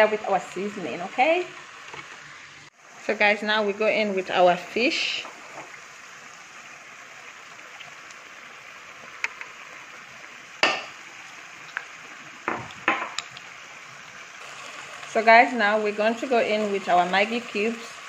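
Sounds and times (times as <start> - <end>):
stew simmering and bubbling: 5.0 - 18.0.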